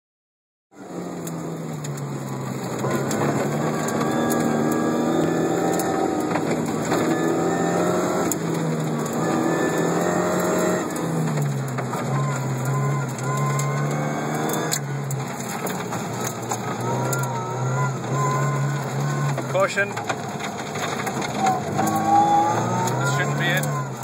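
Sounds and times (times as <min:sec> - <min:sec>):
car engine running hard: 0:00.8 - 0:24.0
gravel ticks and rattles: 0:01.1 - 0:24.0.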